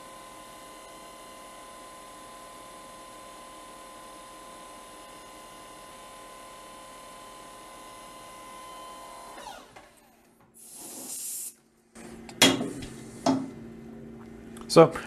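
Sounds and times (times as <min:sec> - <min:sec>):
lathe whine: 0:00.0 - 0:10.3
short hiss: 0:10.6 - 0:11.6.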